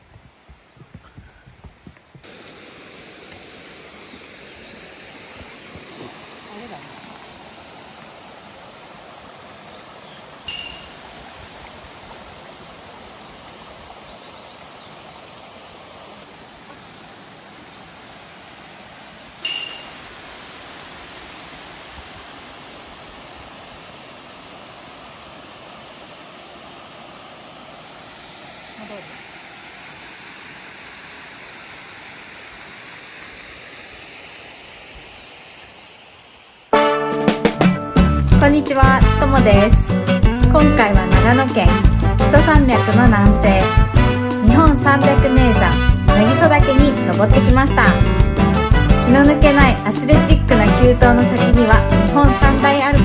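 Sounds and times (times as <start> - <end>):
running water rushing: 0.0 - 53.0
short bright pings: 10.5 - 11.0, 19.4 - 20.0.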